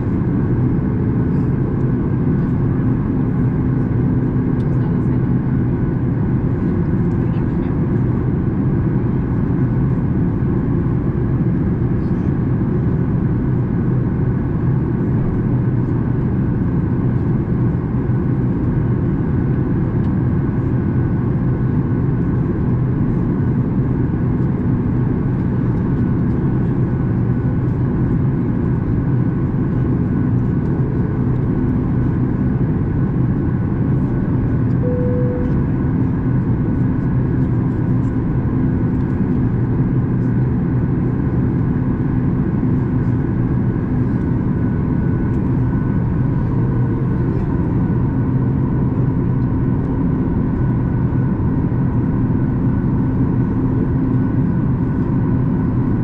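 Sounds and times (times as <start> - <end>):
aircraft engines rumbling: 0.0 - 56.0
faint steady hums: 34.7 - 36.8.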